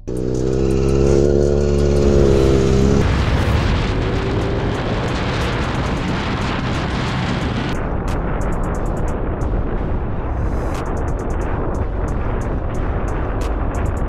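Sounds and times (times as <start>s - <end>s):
motorcycle engine high revs: 0.0s - 6.7s
wind rush over microphone: 0.0s - 14.0s.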